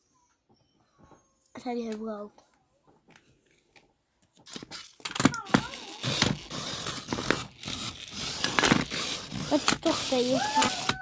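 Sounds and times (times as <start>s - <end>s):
plastic toy robots clattering: 4.4s - 11.0s
small gear motors whirring: 5.4s - 11.0s.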